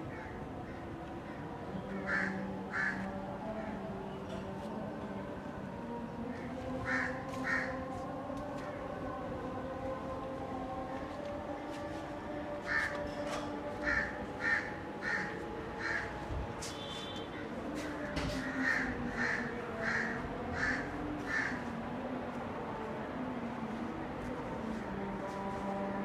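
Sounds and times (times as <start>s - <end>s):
crow cawing: 2.0s - 3.0s, 6.8s - 7.7s, 13.8s - 16.1s, 18.4s - 21.6s.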